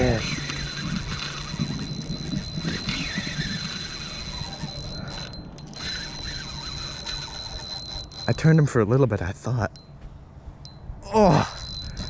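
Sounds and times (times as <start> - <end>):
wind on microphone: 0.0 - 7.3
fishing reel drag squealing: 0.0 - 8.6, 11.3 - 12.0.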